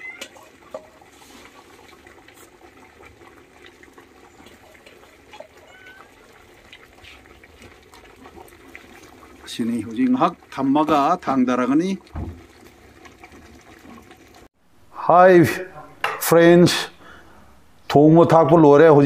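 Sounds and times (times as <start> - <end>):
stew bubbling in a pot: 0.0 - 14.5
wood fire crackling: 0.2 - 14.5.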